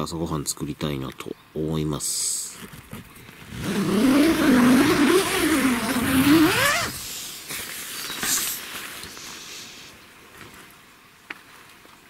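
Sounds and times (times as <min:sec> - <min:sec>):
zipper pulled open: 0:02.6 - 0:07.1.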